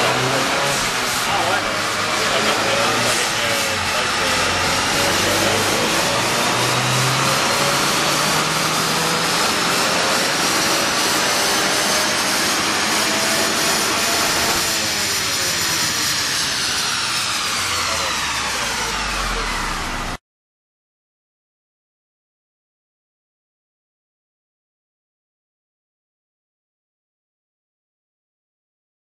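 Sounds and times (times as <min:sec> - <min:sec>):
car engine full-throttle pull: 0:00.0 - 0:20.2.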